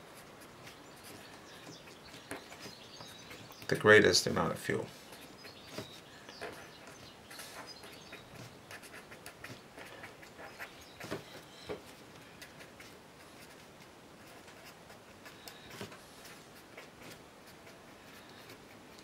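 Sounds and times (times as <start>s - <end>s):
marker scratching on paper: 5.0s - 11.5s, 12.4s - 19.0s.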